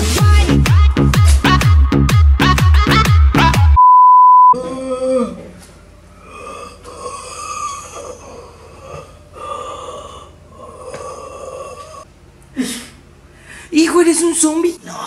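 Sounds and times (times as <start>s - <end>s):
person making drawn-out vocal noises: 4.6s - 5.6s, 6.2s - 13.0s.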